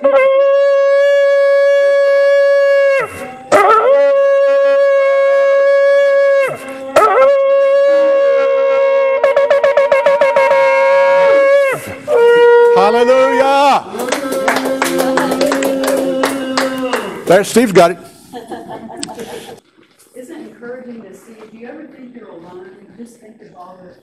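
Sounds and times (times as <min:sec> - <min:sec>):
quick shofar pulses: 0:00.0 - 0:17.1
shofar blasts: 0:00.0 - 0:17.1.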